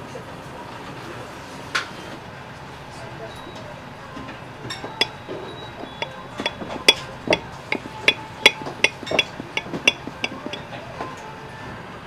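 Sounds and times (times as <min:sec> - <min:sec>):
cutlery clinking on glass plate: 0:05.8 - 0:10.6.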